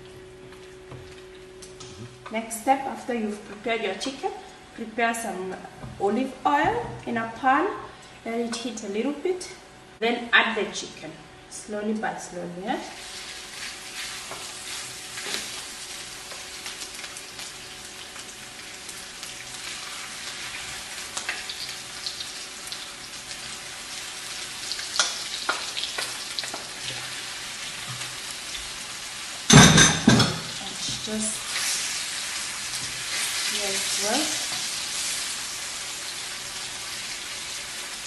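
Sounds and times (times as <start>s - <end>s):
chicken sizzling in oil: 12.9s - 38.0s.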